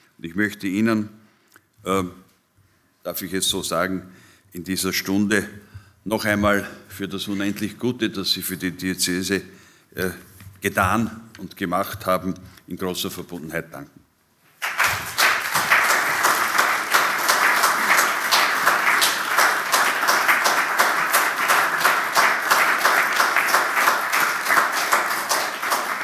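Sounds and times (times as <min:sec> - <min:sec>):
audience applauding: 0:14.6 - 0:26.0.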